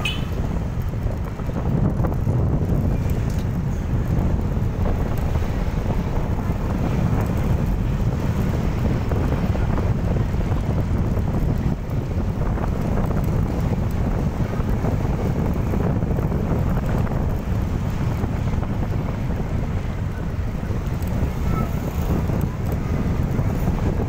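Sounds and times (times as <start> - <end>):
motorcycle engine: 0.0 - 24.0
road noise: 0.0 - 24.0
wind buffeting microphone: 0.0 - 24.0.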